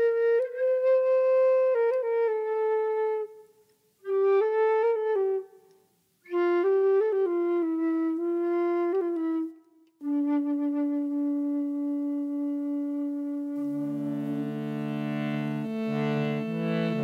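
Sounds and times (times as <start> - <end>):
solo flute melody: 0.0 - 17.0.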